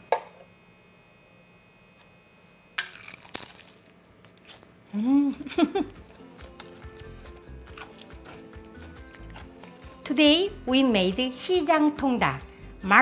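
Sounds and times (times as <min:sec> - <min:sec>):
crispy chicken crunching: 0:02.8 - 0:04.8, 0:05.7 - 0:10.0
chewing: 0:05.8 - 0:10.0.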